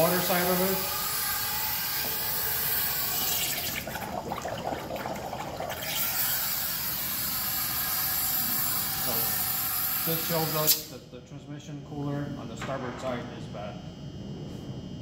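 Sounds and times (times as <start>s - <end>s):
water bubbling and gurgling: 2.2s - 7.3s
compressed air hissing: 6.1s - 11.0s.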